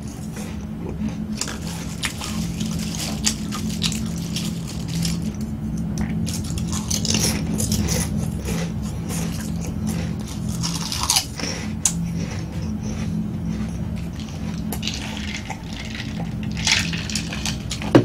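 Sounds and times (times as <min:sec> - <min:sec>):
crunchy chewing: 0:00.0 - 0:18.0
low hum: 0:00.0 - 0:18.0
corn chips crackling: 0:01.3 - 0:05.5, 0:06.2 - 0:12.0, 0:14.0 - 0:18.0.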